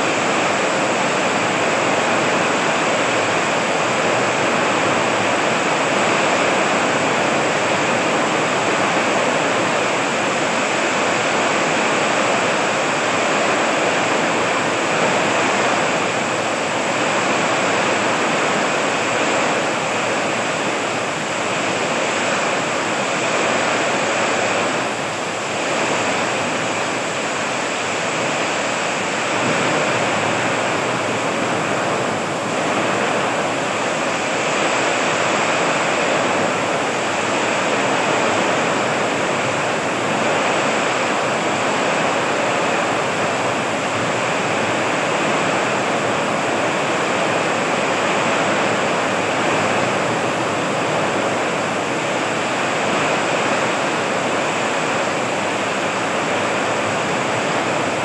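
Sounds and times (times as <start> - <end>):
heavy rain in strong wind: 0.0 - 58.0.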